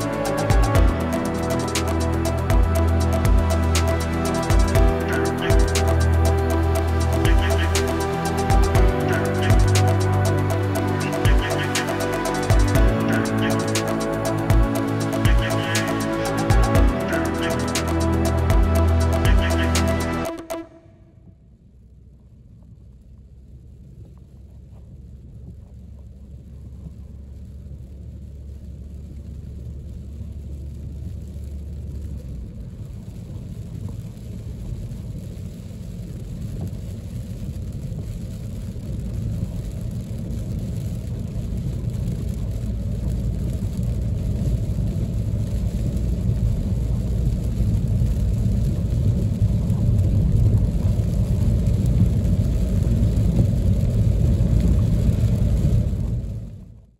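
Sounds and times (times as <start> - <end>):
tyres on wet asphalt: 27.2 - 56.6.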